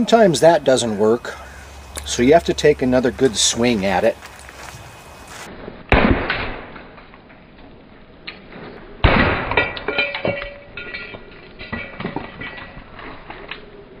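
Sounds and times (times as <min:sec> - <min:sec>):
sledgehammer striking metal: 0:09.0 - 0:12.7
metallic clinks and rattles: 0:09.6 - 0:13.4.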